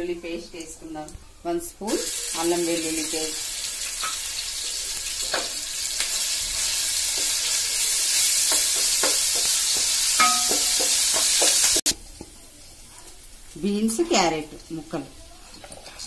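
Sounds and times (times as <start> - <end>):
paste sizzling in hot oil: 1.9 - 16.0.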